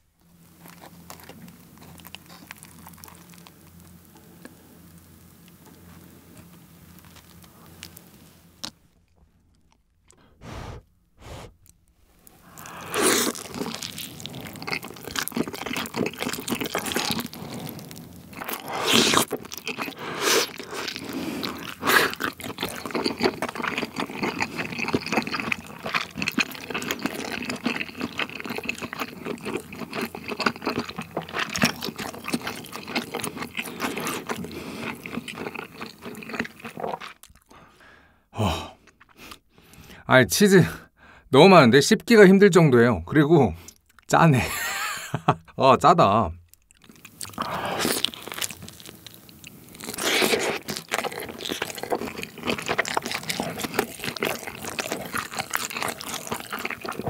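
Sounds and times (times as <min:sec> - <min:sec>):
pizza crust crunching: 0:00.3 - 0:04.6, 0:12.2 - 0:37.4, 0:46.6 - 0:57.0
wet sticky chewing: 0:00.6 - 0:04.6, 0:06.3 - 0:37.6, 0:46.4 - 0:57.0.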